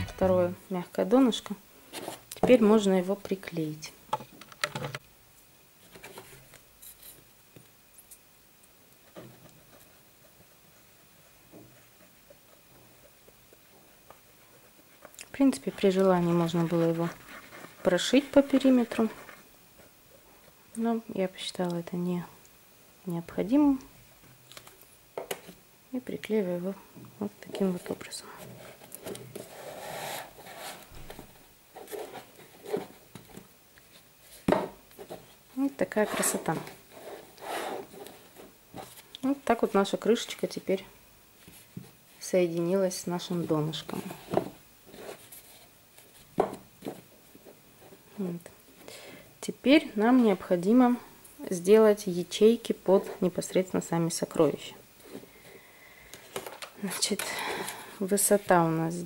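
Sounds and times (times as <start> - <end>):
soft scrapes: 28.3 - 33.0, 35.9 - 39.0
fabric rustling and brushing: 29.3 - 33.0.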